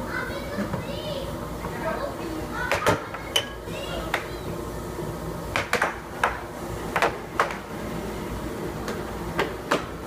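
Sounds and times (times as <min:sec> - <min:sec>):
air hockey puck and mallets clacking: 0:02.7 - 0:04.3, 0:05.5 - 0:07.7, 0:08.8 - 0:10.0.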